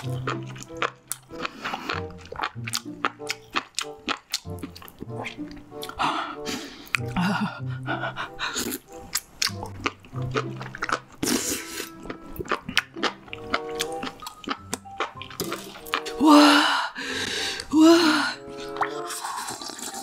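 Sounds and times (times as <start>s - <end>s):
wet chewing and crunching: 0.0s - 6.0s, 8.4s - 16.2s.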